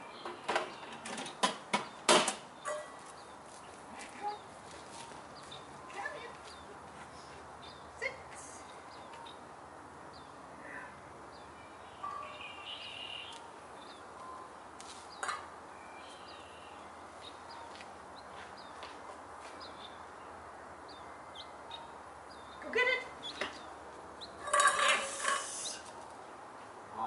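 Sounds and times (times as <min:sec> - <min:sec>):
outdoor background hiss: 0:00.0 - 0:27.0
high bird trill: 0:02.6 - 0:03.0, 0:11.6 - 0:14.4.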